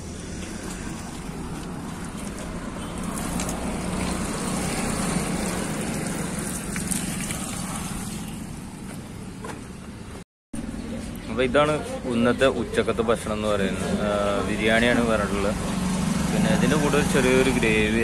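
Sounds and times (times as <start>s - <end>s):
water running from a tap: 0.0s - 8.5s
water splashing over hands: 0.0s - 8.9s
road traffic hum: 0.0s - 18.0s.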